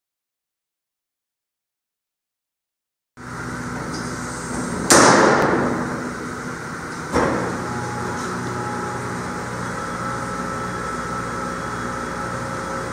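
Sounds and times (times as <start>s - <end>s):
loud metal bangs: 4.7s - 6.2s.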